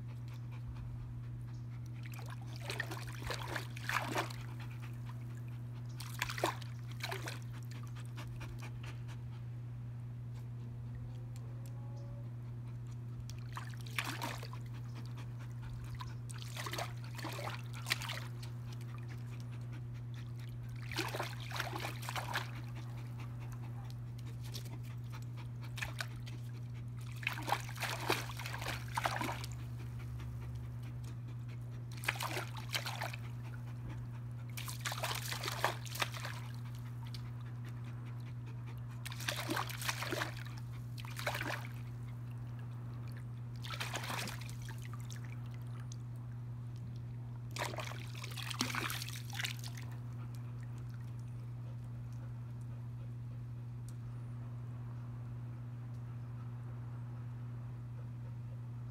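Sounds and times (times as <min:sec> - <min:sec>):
low hum: 0:00.0 - 0:58.9
dog splashing water: 0:02.0 - 0:05.3, 0:06.0 - 0:08.4, 0:13.3 - 0:19.2, 0:20.4 - 0:29.9, 0:31.9 - 0:33.6, 0:34.5 - 0:37.4, 0:39.0 - 0:42.1, 0:43.1 - 0:46.0, 0:47.5 - 0:50.0.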